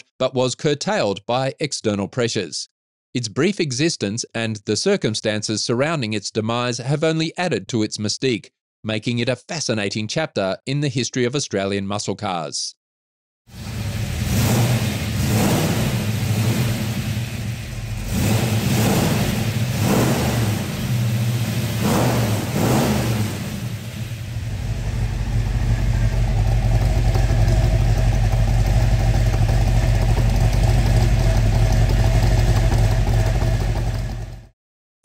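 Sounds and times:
car engine revving and idling: 0:13.5 - 0:34.5.

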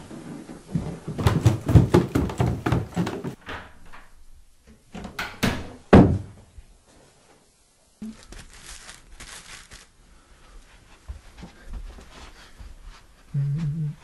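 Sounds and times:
knocks and thuds: 0:01.0 - 0:03.4, 0:05.4 - 0:06.4
clothing rustling: 0:08.0 - 0:10.0.

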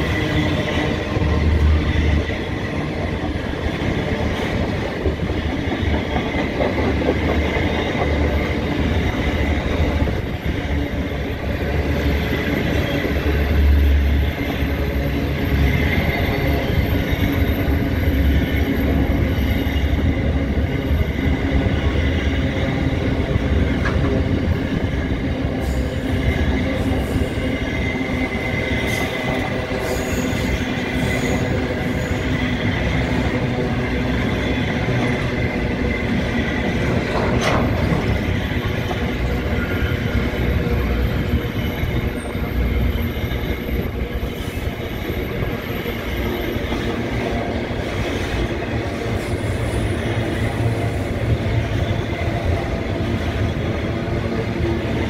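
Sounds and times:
freight wagons rumbling on rails: 0:00.0 - 0:55.0
high wheel squeal: 0:24.7 - 0:36.8, 0:37.7 - 0:47.2.

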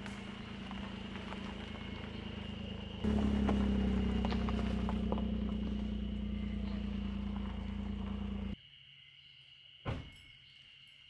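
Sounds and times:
car engine hum: 0:00.0 - 0:08.6
tyres crunching on gravel: 0:00.0 - 0:08.6.

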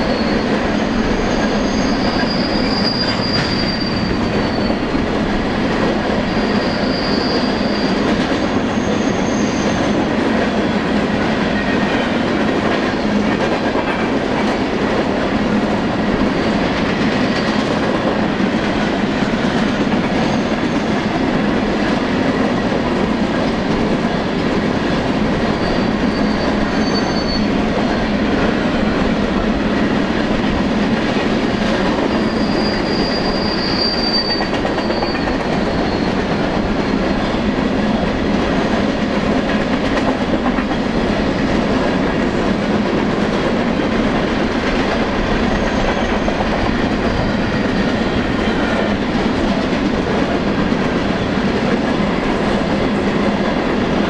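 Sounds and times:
high-pitched wheel squeals: 0:00.0 - 0:05.0, 0:06.3 - 0:09.9, 0:25.5 - 0:27.6, 0:32.1 - 0:37.4
train wheels rumbling on rail: 0:00.0 - 0:54.0.

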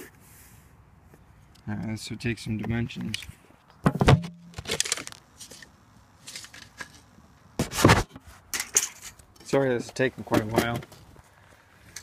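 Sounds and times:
handling rustles and scrapes: 0:03.0 - 0:12.0.

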